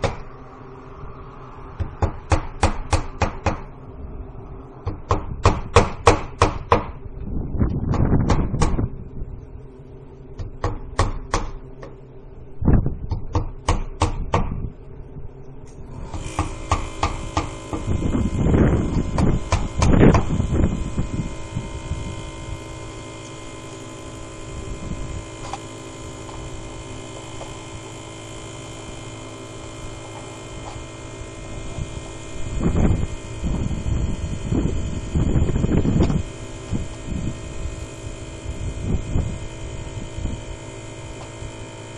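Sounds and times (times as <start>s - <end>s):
steady mechanical hum: 0.0s - 41.9s
hammer knocking nails: 4.9s - 7.0s.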